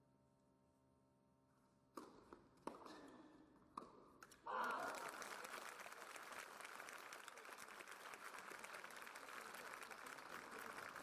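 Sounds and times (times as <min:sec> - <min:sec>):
spectators applauding: 0:04.5 - 0:11.0.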